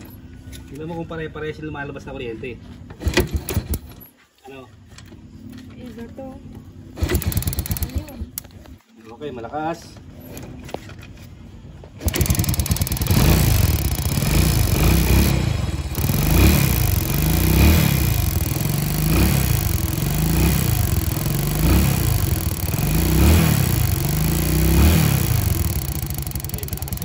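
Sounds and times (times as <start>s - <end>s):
motorcycle engine cranking: 3.0s - 4.1s, 7.0s - 8.7s, 12.0s - 27.0s.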